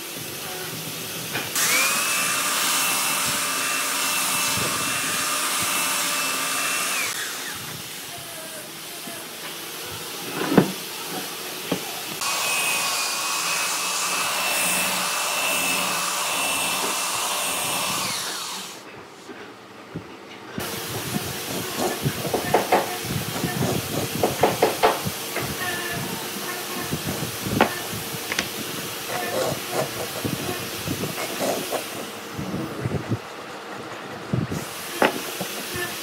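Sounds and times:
power tool motor whining: 1.5s - 8.1s, 12.1s - 18.8s, 20.6s - 32.4s, 34.5s - 36.0s.

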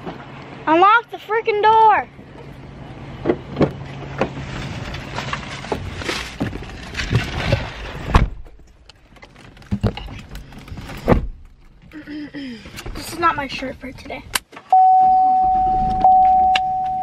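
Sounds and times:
outdoor background noise: 0.0s - 17.0s
car door shutting: 10.8s - 11.5s, 14.8s - 16.9s.

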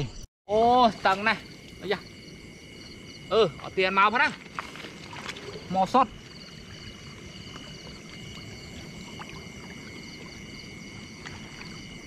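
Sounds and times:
night insects chorus: 0.0s - 12.0s
net drawn through water: 4.3s - 11.8s.

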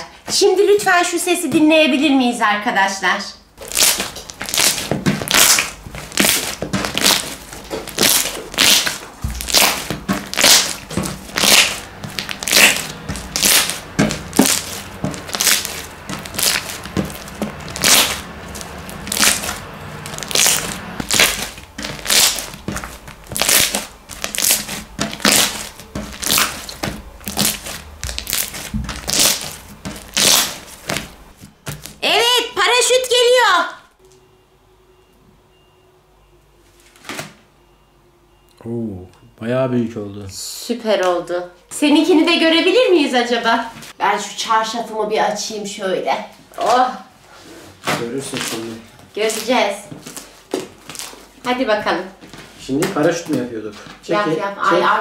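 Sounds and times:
slime crackling pops: 3.7s - 31.1s.

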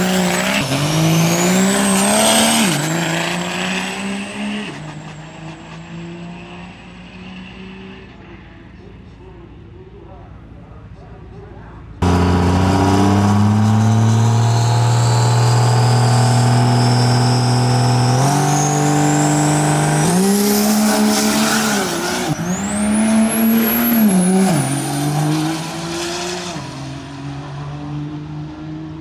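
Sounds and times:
diesel engine revving: 0.0s - 4.6s, 12.0s - 27.1s.

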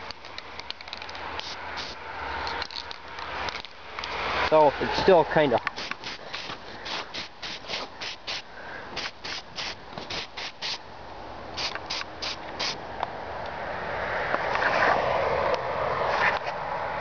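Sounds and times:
spray-paint can hissing in bursts: 1.4s - 2.0s, 5.8s - 10.8s, 11.6s - 12.8s.

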